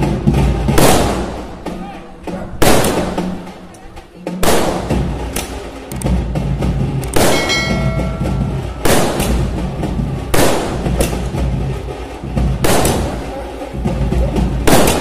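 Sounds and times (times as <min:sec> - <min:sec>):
firework shells bursting: 0:00.8 - 0:01.7, 0:02.6 - 0:03.8, 0:06.9 - 0:11.4, 0:12.6 - 0:13.3, 0:14.7 - 0:15.0.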